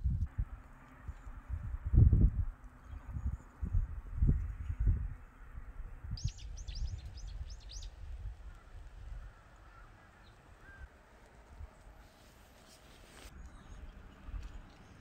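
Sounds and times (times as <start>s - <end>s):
faint outdoor background: 0.0s - 15.0s
small bird chirping: 6.2s - 8.0s.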